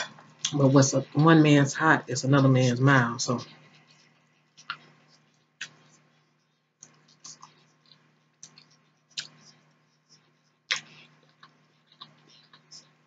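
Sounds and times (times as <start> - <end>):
faint steady hum: 0.0 - 13.0
wet mouth clicks and smacks: 4.6 - 6.0, 6.8 - 9.5, 10.7 - 12.8.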